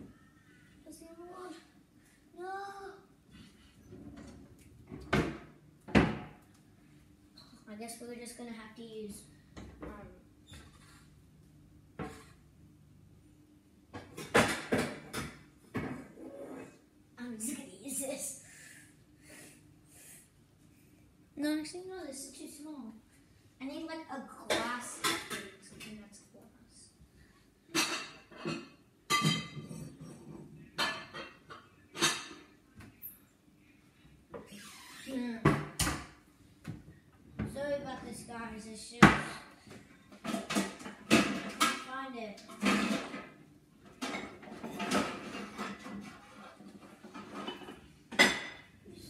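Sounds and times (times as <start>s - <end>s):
dishes clinking and clattering: 13.9s - 16.7s, 24.5s - 25.9s, 27.7s - 32.6s, 40.1s - 41.9s, 42.5s - 48.8s
metal pots and pans clattering: 40.2s - 41.8s, 42.5s - 48.7s.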